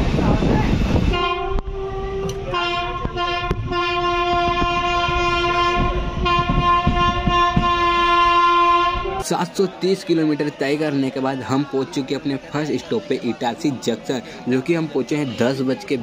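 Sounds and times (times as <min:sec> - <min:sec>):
train horn blast: 0:01.1 - 0:09.2.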